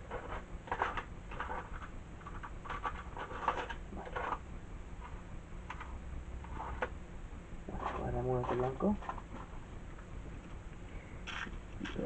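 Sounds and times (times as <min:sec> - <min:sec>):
electronic parts rustling and clicking: 0:00.0 - 0:04.4, 0:11.2 - 0:12.0
low steady hum: 0:00.0 - 0:12.0.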